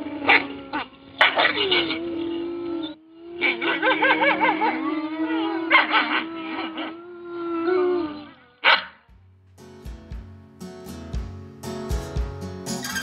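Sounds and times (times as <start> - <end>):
wolf howling: 0.0 - 8.8
wolves yipping and barking: 0.0 - 9.0, 12.8 - 13.0
music: 9.1 - 13.0.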